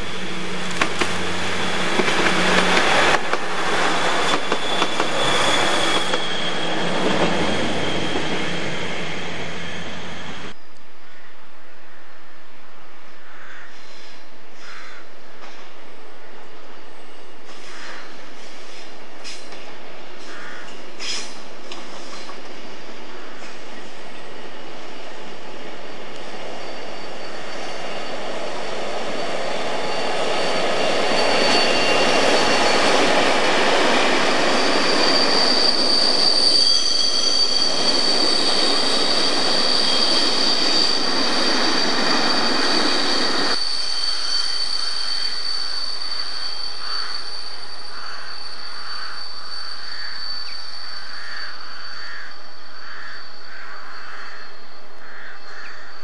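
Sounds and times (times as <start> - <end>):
passenger train passing: 0.0 - 10.6, 13.8 - 56.0
high-pitched wheel squeal: 1.6 - 10.6, 24.2 - 54.6.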